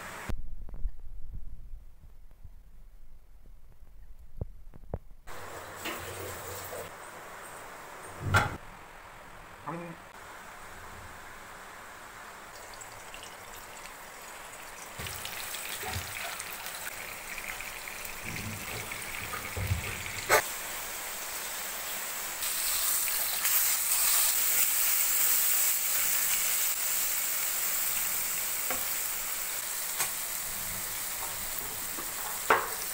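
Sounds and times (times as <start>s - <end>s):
fish sizzling in hot oil: 12.5s - 32.9s.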